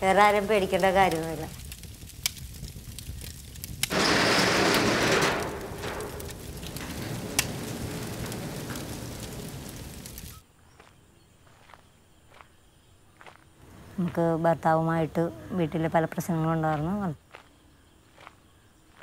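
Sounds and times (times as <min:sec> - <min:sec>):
wood fire crackling and popping: 0:00.0 - 0:10.4
rushing surge of flame: 0:01.0 - 0:10.4.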